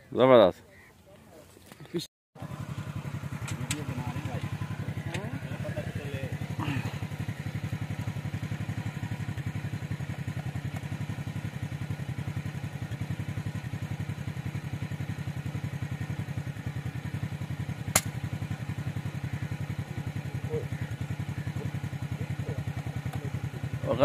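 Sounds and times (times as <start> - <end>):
engine chugging: 2.4 - 24.0
air rifle shot: 17.9 - 18.2.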